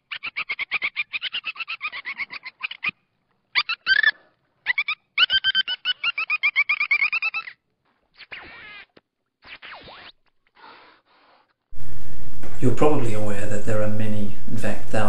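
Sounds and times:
falling animal call: 3.6 - 7.6, 8.2 - 10.1.

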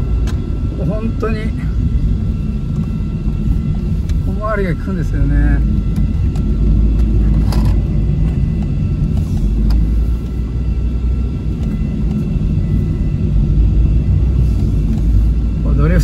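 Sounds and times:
car engine rumble: 0.0 - 16.0.

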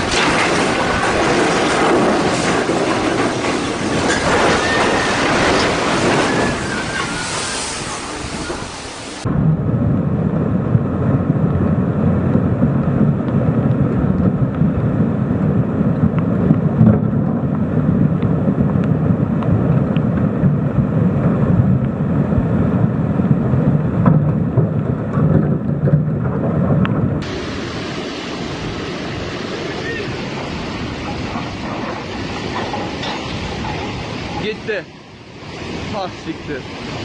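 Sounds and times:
floodwater rushing: 0.0 - 9.3, 27.2 - 37.0.

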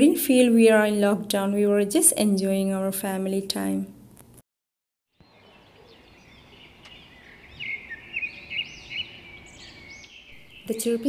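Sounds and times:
small birds chirping: 5.1 - 11.0
faint outdoor hiss: 5.2 - 11.0.

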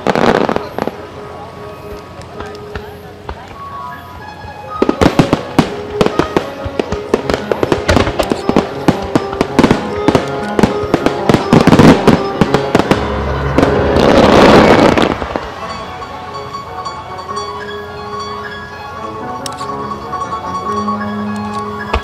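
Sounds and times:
fireworks bangs and crackles: 0.0 - 16.0
music: 0.0 - 22.0.

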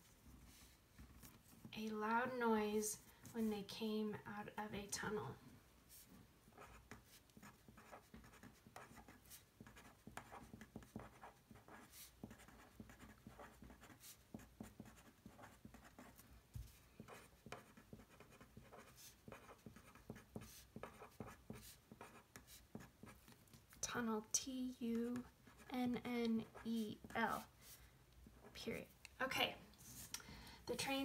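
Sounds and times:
felt-tip pen scratching on paper: 6.6 - 16.3, 17.0 - 23.2.

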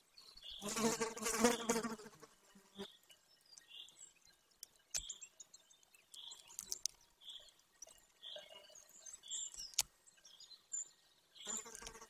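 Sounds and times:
insect buzzing: 0.6 - 3.0, 11.5 - 12.0
faint sharp clicks and ticks: 4.5 - 8.1, 9.4 - 10.0.

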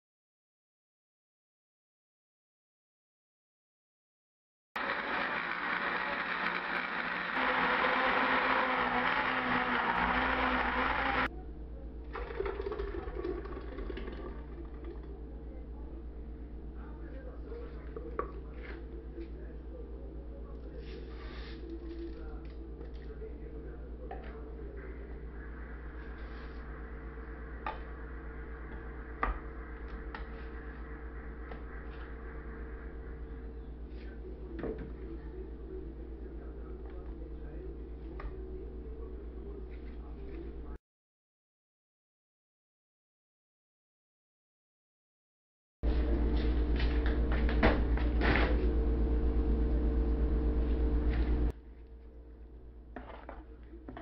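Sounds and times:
blender running: 4.8 - 11.3
steady low hum: 11.2 - 40.8, 45.8 - 54.0.

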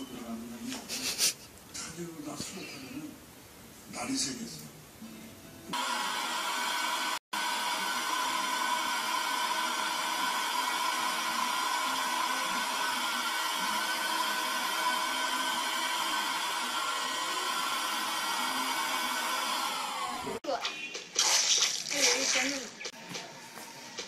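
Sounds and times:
handheld vacuum cleaner running: 5.8 - 20.4.

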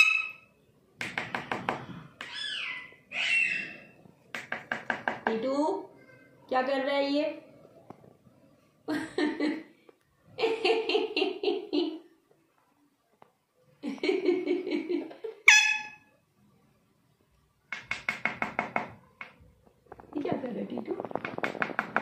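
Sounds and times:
parakeet squawk: 0.0 - 0.5, 2.3 - 4.0, 15.5 - 16.1
parakeets chattering: 2.3 - 4.0.

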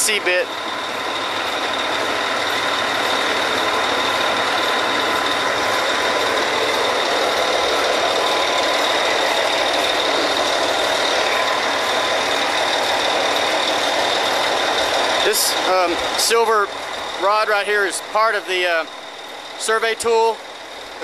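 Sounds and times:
drilling rig machinery running: 0.0 - 21.0
high mechanical whining: 0.0 - 21.0.

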